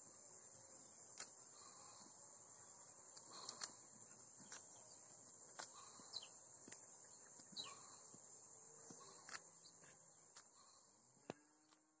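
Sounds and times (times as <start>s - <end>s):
bird chirp: 0.0s - 10.9s
crickets droning: 0.0s - 12.0s
faint sharp clicks: 1.1s - 1.4s, 3.1s - 3.8s, 4.4s - 8.2s, 8.9s - 10.6s.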